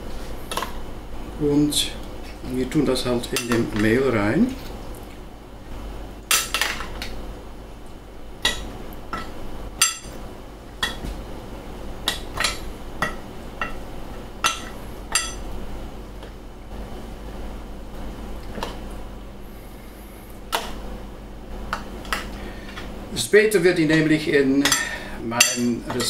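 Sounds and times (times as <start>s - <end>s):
metal spoons clinking against bowls: 14.4s - 15.4s.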